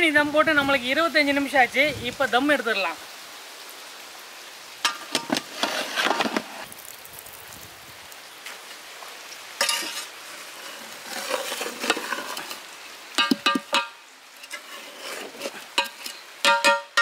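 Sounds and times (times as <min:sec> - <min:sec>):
ladle clanking against metal pot: 0:13.2 - 0:14.6, 0:15.8 - 0:17.0.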